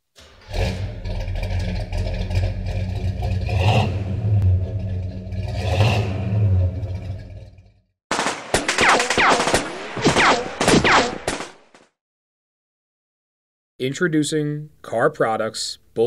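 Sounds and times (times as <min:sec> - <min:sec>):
car engine idling and revving: 0:00.4 - 0:07.8.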